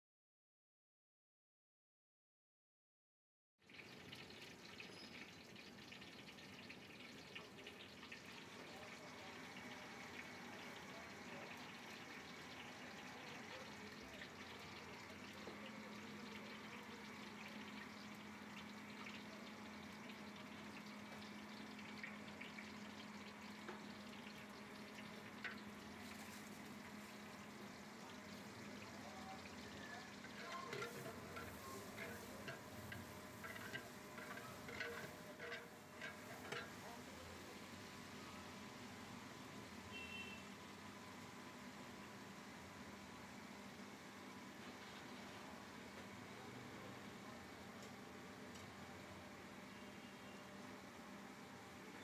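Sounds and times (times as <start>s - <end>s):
oil sizzling with crackles: 3.6s - 52.0s
onions hissing in hot oil: 3.7s - 40.9s.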